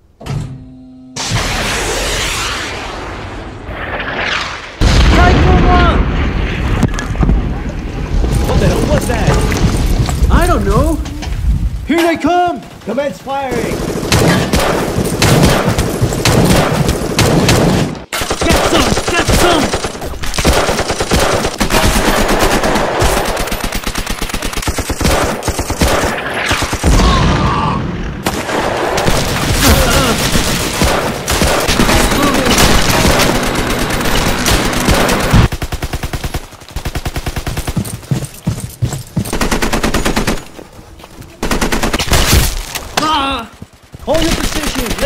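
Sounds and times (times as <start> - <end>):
machine-gun and rifle fire: 13.5 - 26.9, 28.2 - 38.0, 39.3 - 40.5, 41.4 - 42.6.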